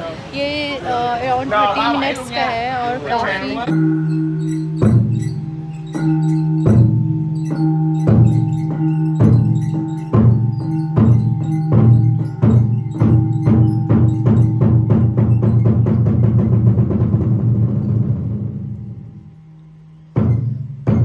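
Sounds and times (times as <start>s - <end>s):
deep drum strikes into fast roll: 9.2s - 18.7s.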